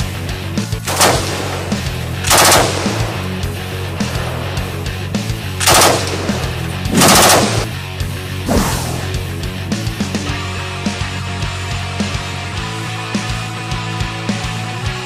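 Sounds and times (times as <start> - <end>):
background music with a beat: 0.0 - 15.0
machine gun bursts: 0.9 - 3.5, 5.6 - 7.8.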